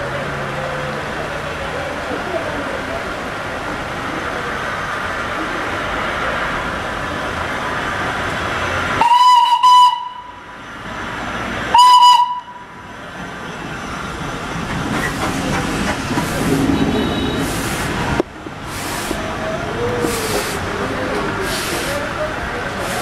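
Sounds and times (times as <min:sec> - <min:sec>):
shrill steam whistle: 0:09.0 - 0:10.4, 0:11.7 - 0:12.7
steam locomotive hissing: 0:11.7 - 0:23.0.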